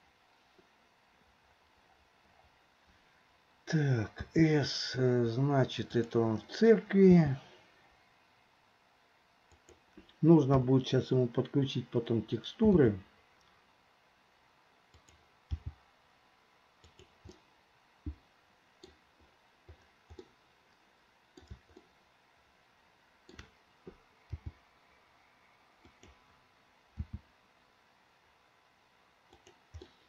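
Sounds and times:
computer mouse and keyboard clicks: 9.5s - 10.2s, 14.9s - 15.8s, 16.8s - 17.4s, 18.8s - 20.4s, 21.3s - 21.9s, 23.3s - 24.6s, 25.8s - 26.2s, 27.0s - 27.3s, 29.3s - 30.0s.

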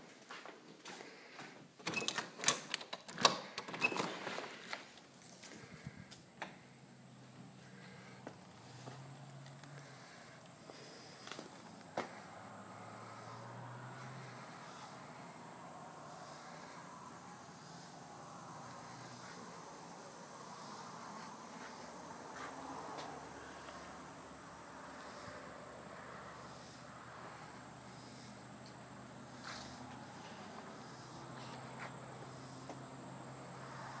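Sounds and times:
faint outdoor background noise: 0.0s - 34.0s
insects trilling: 7.6s - 34.0s.

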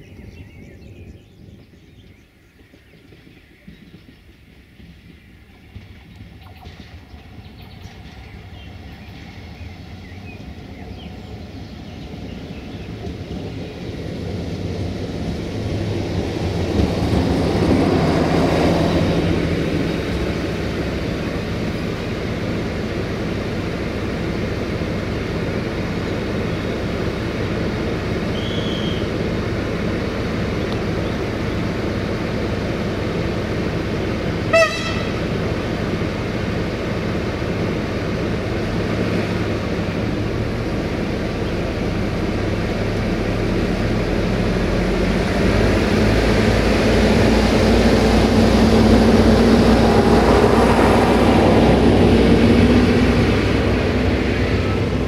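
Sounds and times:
diesel train engine running: 0.0s - 55.0s
train horn toot: 34.5s - 35.4s.

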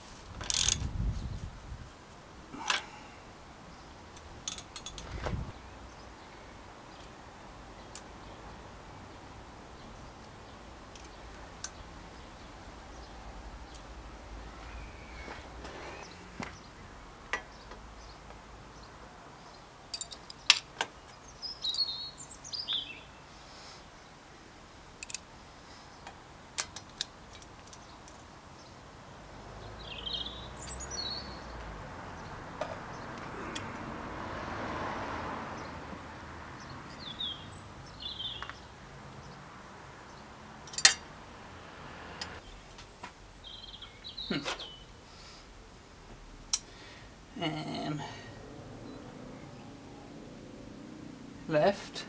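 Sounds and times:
soft rushing noise: 0.0s - 6.2s
metal clicks of bicycle crank: 0.4s - 0.8s, 4.2s - 5.0s, 25.0s - 25.2s
birds chirping: 2.0s - 45.6s, 46.2s - 52.0s.

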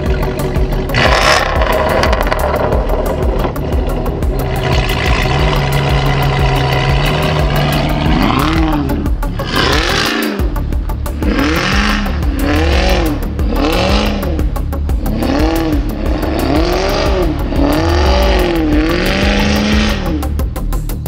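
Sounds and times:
car engine revving: 0.0s - 20.7s
wheels spinning on snow: 1.0s - 8.7s.

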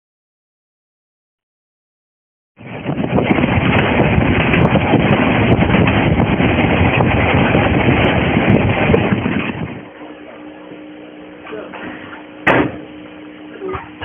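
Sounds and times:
wind buffeting microphone: 2.6s - 10.0s.

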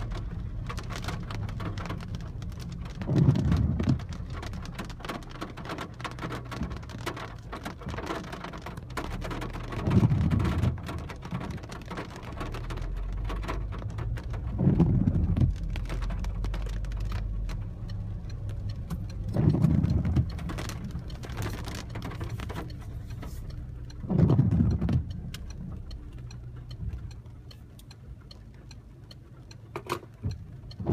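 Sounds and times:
windscreen wiper swish: 0.0s - 28.2s, 28.9s - 30.9s
rain pattering on car windscreen: 0.0s - 30.9s
car engine running: 8.7s - 30.9s.

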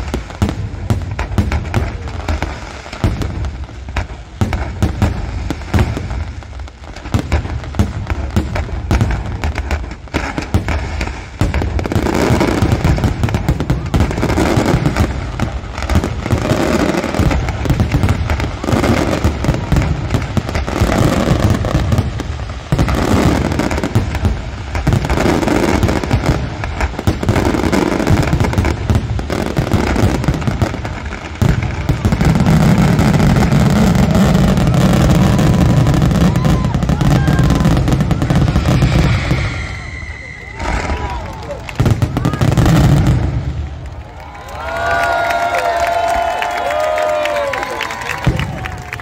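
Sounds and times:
firework shells bursting: 29.7s - 44.0s.

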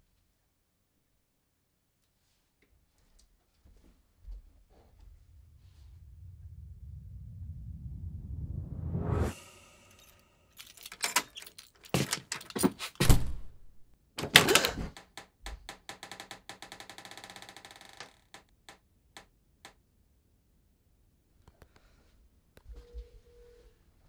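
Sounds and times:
door clicking rattle: 10.6s - 13.6s, 14.2s - 18.4s
knocks and thuds on door: 11.9s - 13.5s.

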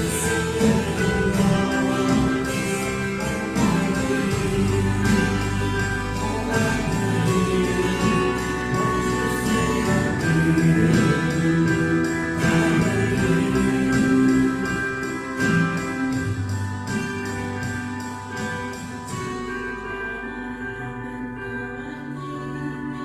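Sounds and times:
people singing into microphones: 0.0s - 16.5s
acoustic guitar: 0.0s - 23.0s
bass guitar: 0.0s - 23.0s
keyboard: 0.0s - 23.0s.

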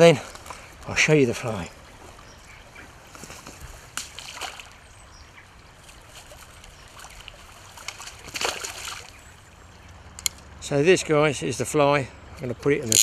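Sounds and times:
river water trickling: 0.0s - 13.0s
small water splashes: 3.9s - 9.7s.

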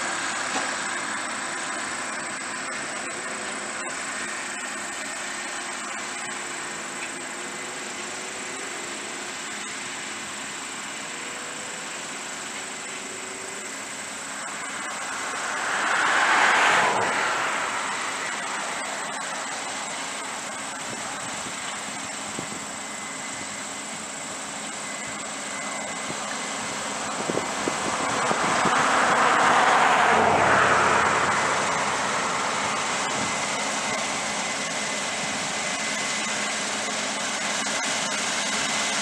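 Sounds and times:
combine harvester running: 0.0s - 39.0s
rush of noise: 11.0s - 38.3s.

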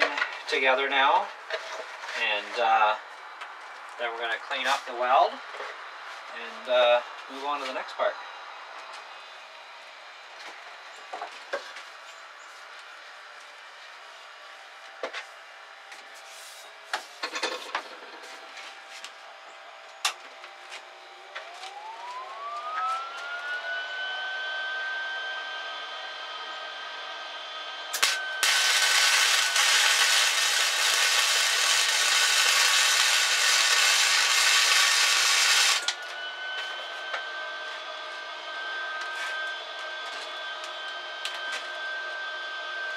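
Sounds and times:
rising machine whine: 19.2s - 42.9s
welder arc crackling: 27.9s - 36.0s.

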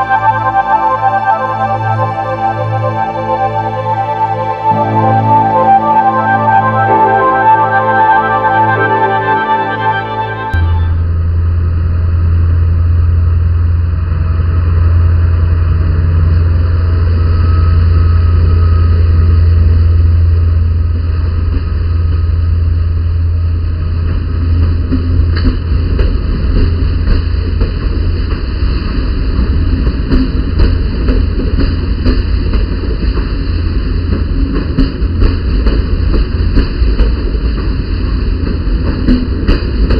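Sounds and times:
diesel locomotive engine drone: 0.0s - 39.9s
train wheels clicking over rail joints: 23.6s - 39.9s.

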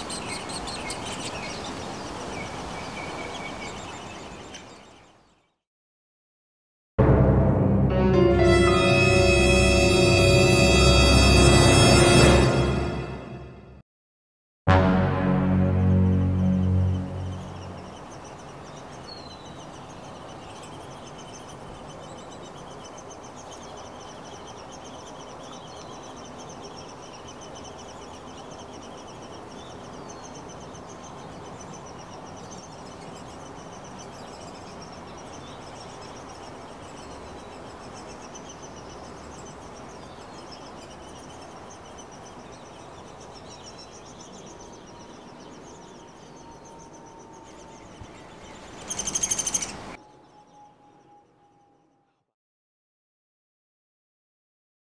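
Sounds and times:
low rushing background noise: 7.0s - 13.6s, 14.7s - 51.0s
high pulsing buzz: 7.0s - 13.8s
sudden loud burst: 14.7s - 17.4s.

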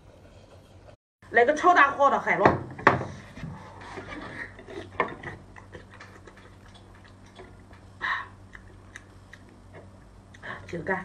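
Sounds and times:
wet chewing smacks: 4.8s - 10.8s.

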